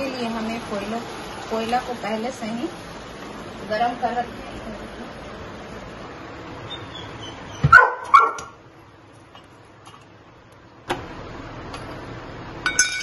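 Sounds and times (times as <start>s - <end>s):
gas stove burner hissing: 0.0s - 12.6s
loud pitched calls: 6.6s - 7.8s.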